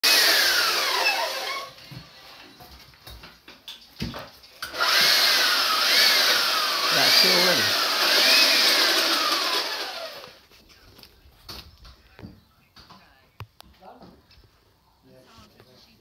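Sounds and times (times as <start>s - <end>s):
electric drill boring into wall: 0.0s - 1.8s, 4.6s - 10.4s.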